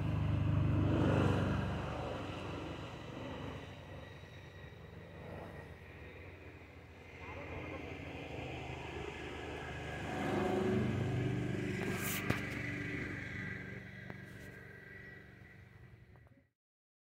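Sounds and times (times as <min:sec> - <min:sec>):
vehicle engine passing by: 0:00.0 - 0:04.0, 0:07.1 - 0:16.2.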